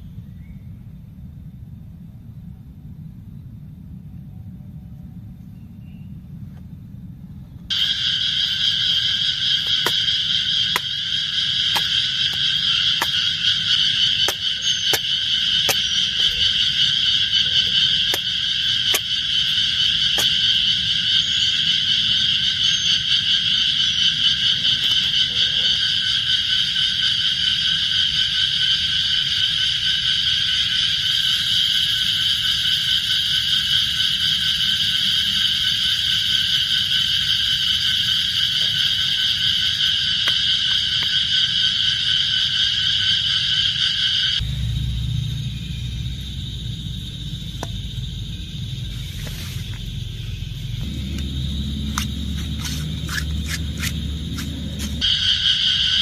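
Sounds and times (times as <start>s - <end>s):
chorus of calling animals: 7.7s - 44.4s, 46.4s - 56.0s
knife chopping wood: 9.6s - 11.0s, 11.6s - 16.0s, 18.1s - 19.2s, 20.1s - 20.5s, 50.8s - 55.0s.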